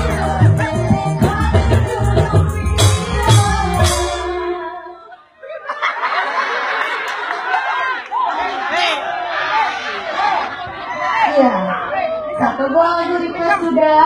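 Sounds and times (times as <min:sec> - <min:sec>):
drum and cymbal hits: 0:00.0 - 0:04.5
live band with woman singing: 0:00.0 - 0:05.0
people talking: 0:11.3 - 0:14.0.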